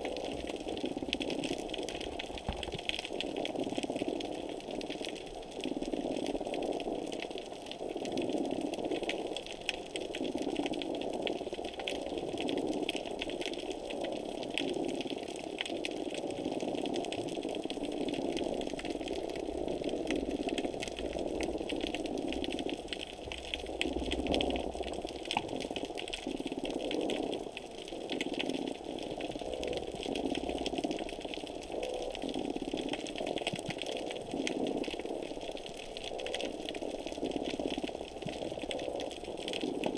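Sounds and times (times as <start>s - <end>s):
low underwater rushing hum: 0.0s - 6.0s
crackle of tiny underwater clicks: 0.0s - 39.9s.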